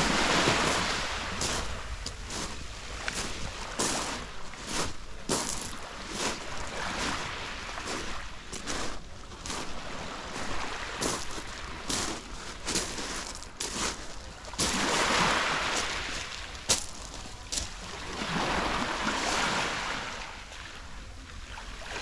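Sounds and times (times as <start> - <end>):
small waves washing on pebbles: 0.0 - 20.2
footsteps crunching on pebbles: 0.5 - 7.0, 10.4 - 14.9, 16.7 - 17.8.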